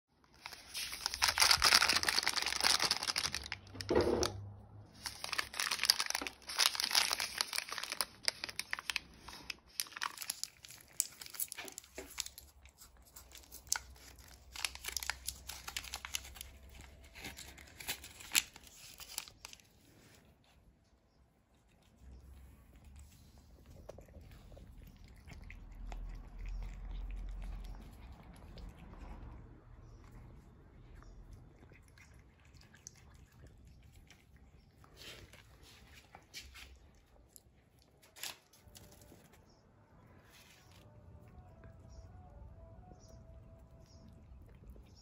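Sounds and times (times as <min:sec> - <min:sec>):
plastic wrapper crinkling and tearing: 0:00.3 - 0:04.4, 0:05.0 - 0:19.8, 0:37.8 - 0:39.4.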